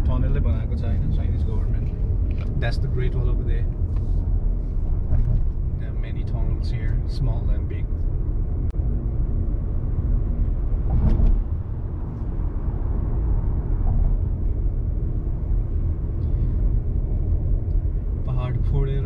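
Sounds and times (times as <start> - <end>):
car engine and tyres rumbling: 0.0 - 19.0.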